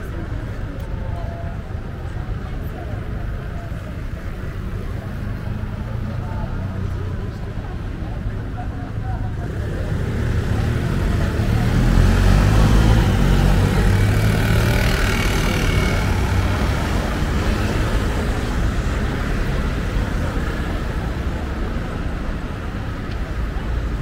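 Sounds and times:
vehicle passing by: 9.4 - 21.4.

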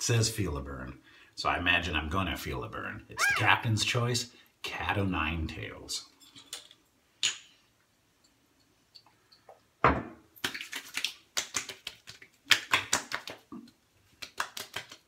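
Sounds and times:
hands patting skin: 10.4 - 15.0.

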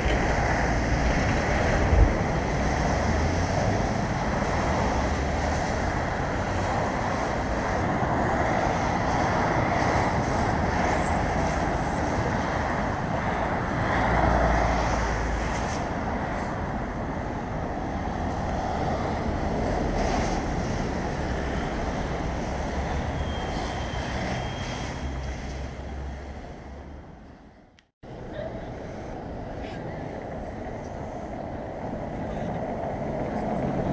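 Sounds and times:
wind buffeting microphone: 0.0 - 27.1
road traffic passing: 0.0 - 33.9.

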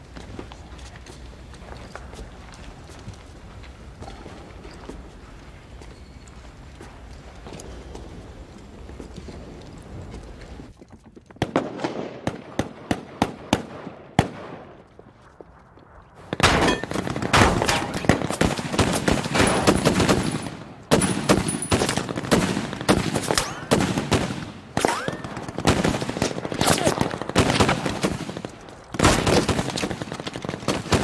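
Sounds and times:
rifle gunfire: 16.3 - 31.0.

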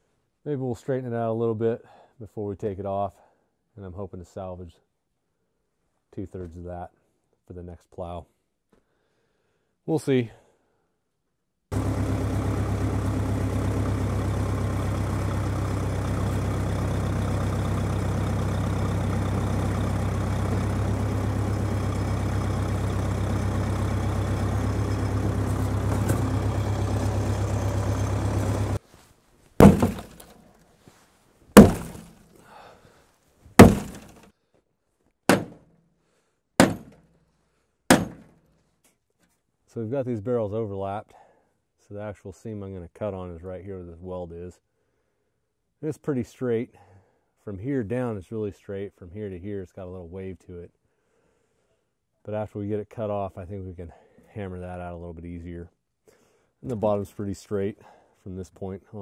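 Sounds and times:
tractor engine running: 11.7 - 28.8, 29.6 - 30.4, 31.6 - 32.2, 33.6 - 34.2.

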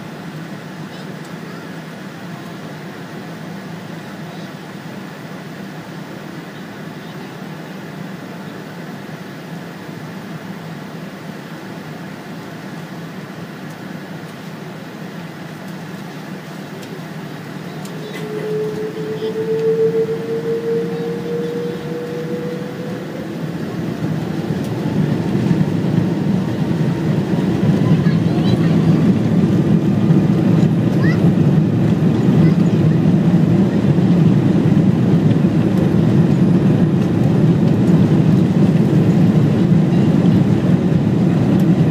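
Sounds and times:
airplane cabin engine hum: 0.0 - 41.9
jet engines spooling up: 14.8 - 41.9.

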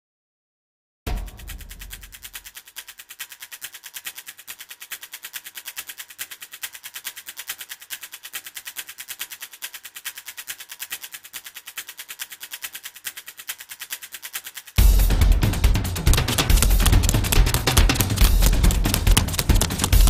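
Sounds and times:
loud music with drums: 1.1 - 2.2, 14.8 - 20.0
fast even ticking: 1.1 - 20.0.

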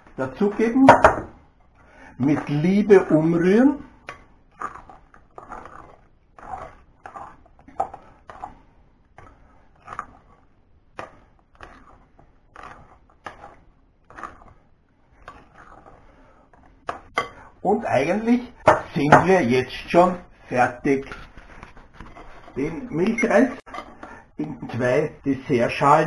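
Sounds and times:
spoon scraping in glass bowl: 4.6 - 8.6.

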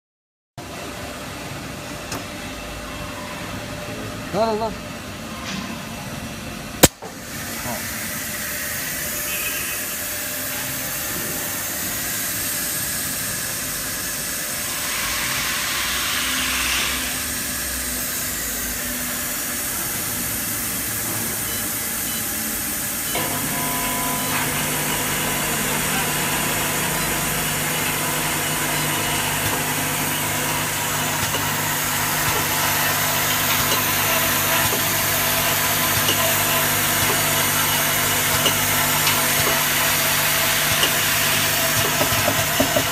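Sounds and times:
machine motors humming: 16.3 - 42.9.

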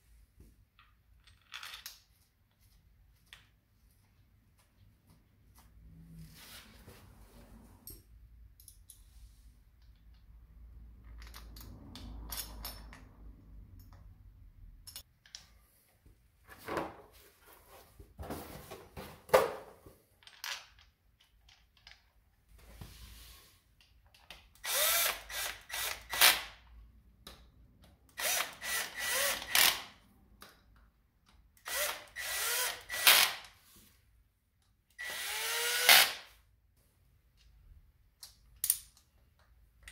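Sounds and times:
faint clicks of parts handled: 0.4 - 5.9, 7.9 - 10.4, 14.8 - 16.2, 20.2 - 22.8, 23.7 - 24.6, 36.8 - 39.9
cordless drill whining: 24.6 - 26.3, 28.2 - 29.8, 31.6 - 33.4, 35.0 - 36.2.

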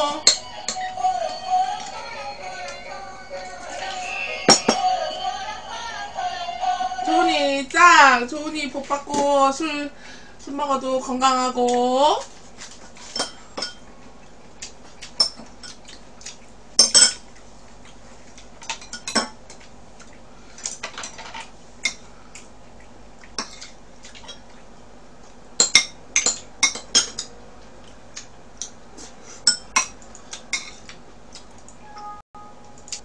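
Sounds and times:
utensils clinking against dishes: 4.5 - 4.8, 13.0 - 13.9, 16.8 - 17.3, 25.6 - 27.4, 29.4 - 30.9.

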